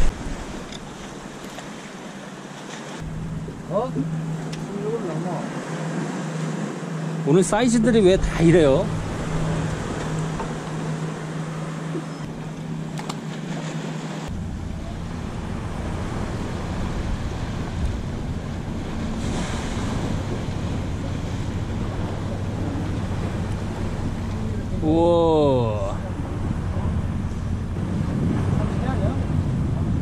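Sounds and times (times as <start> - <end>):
wind on microphone: 0.0 - 1.2, 14.2 - 30.0
water lapping around boat: 0.0 - 30.0
low steady hum: 3.0 - 30.0.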